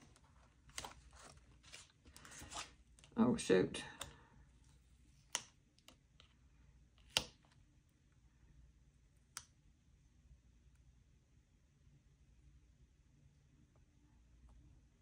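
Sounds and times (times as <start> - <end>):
faint clicks and taps of binder: 5.1 - 7.6.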